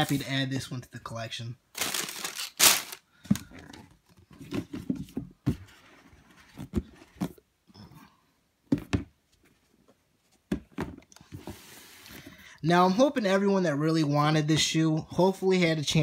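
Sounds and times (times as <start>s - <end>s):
tissue paper rustling: 1.8s - 3.0s.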